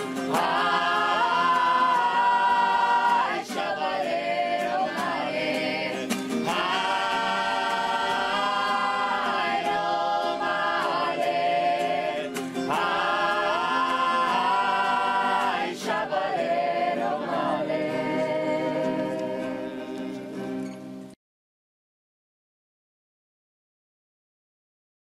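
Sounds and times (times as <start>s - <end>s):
women singing together: 0.0s - 20.6s.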